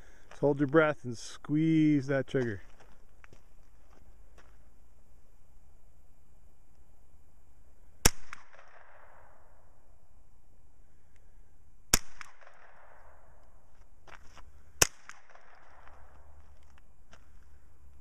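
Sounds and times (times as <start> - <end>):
rifle shots with echo: 8.0 - 9.8, 11.9 - 13.4, 14.8 - 16.4.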